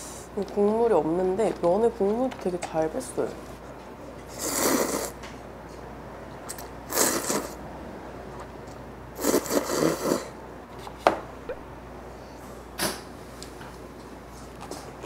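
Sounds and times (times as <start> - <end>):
person slurping noodles: 4.3 - 5.2, 6.5 - 7.6, 9.2 - 10.4.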